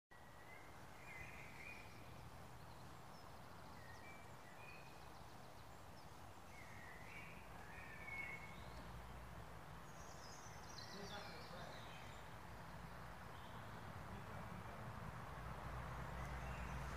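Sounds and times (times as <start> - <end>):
songbirds whistling: 0.2 - 8.9.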